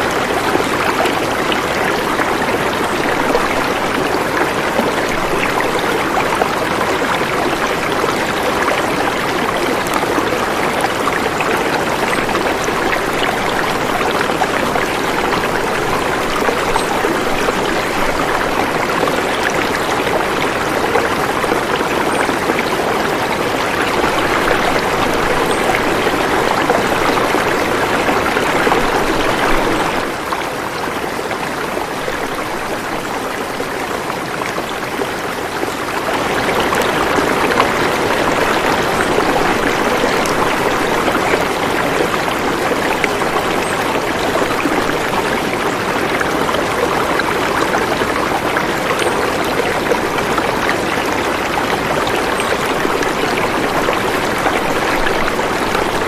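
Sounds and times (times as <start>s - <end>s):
stream flowing over rocks: 0.0s - 56.0s.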